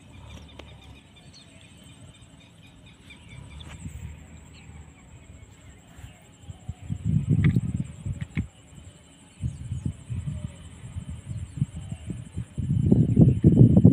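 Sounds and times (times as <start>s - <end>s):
bird chirping: 0.0s - 10.6s
high-pitched insect drone: 0.0s - 13.9s
low rumbles: 1.9s - 13.9s.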